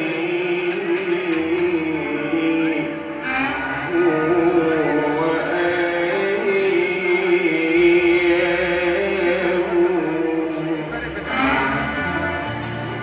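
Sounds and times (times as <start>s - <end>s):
man singing: 0.0s - 12.5s
live band accompaniment: 10.4s - 13.0s.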